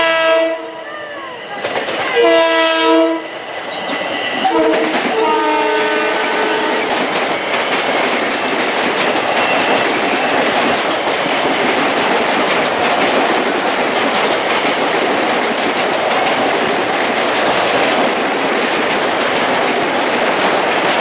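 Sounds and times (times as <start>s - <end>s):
train horn: 0.0s - 1.2s, 2.0s - 3.4s, 4.3s - 6.9s
train wheels rumbling on rails: 0.0s - 21.0s.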